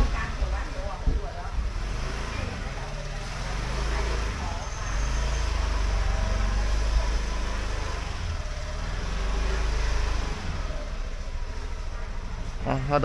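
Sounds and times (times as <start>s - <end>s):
street noise: 0.0s - 13.0s.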